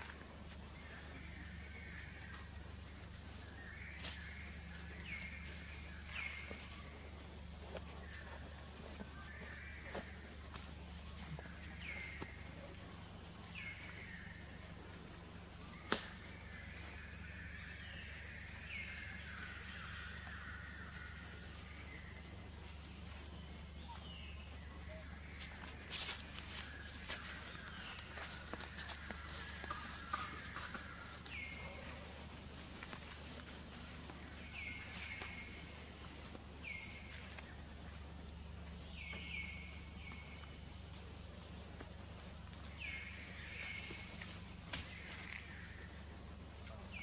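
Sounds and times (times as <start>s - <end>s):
low steady hum: 0.0s - 47.0s
sharp crack: 15.8s - 16.2s.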